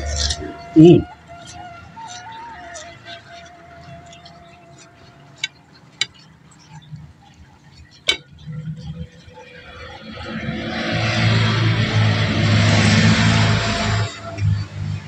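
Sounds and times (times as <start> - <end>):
passing vehicle engine: 0.0 - 5.5, 8.5 - 15.0.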